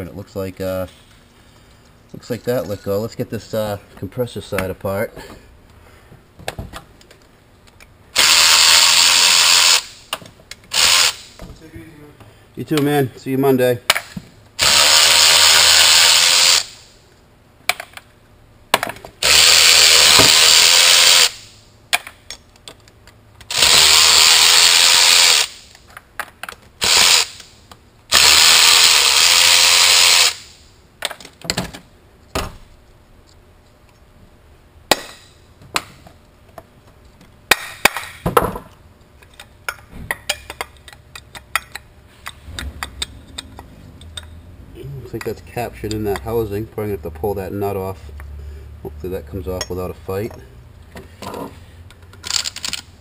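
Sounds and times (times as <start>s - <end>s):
cordless electric ratchet running: 8.2s - 10.0s, 10.7s - 11.3s, 14.6s - 16.8s, 19.2s - 21.4s, 23.5s - 25.6s, 26.8s - 27.4s, 28.1s - 30.5s.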